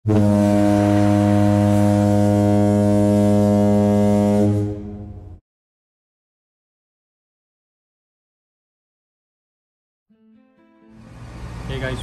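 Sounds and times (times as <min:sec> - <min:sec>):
low steady horn-like tone: 0:00.0 - 0:05.4.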